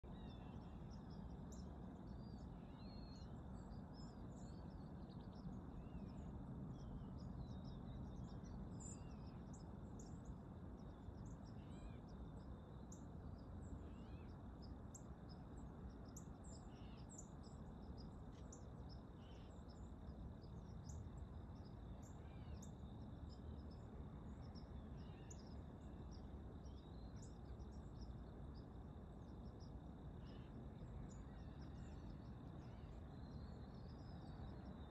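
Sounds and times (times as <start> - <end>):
songbirds chirping: 0.0 - 34.9.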